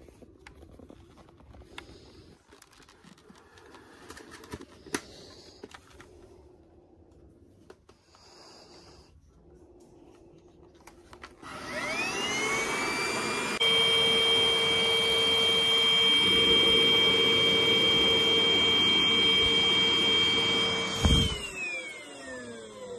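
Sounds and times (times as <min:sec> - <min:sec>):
vacuum cleaner motor whine: 0:10.8 - 0:22.9.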